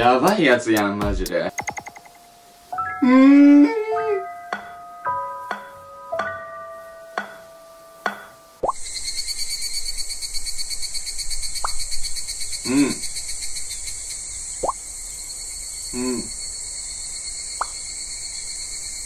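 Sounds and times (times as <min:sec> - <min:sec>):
wavering character calls: 0:02.8 - 0:04.4
insect chorus drone: 0:08.6 - 0:19.0.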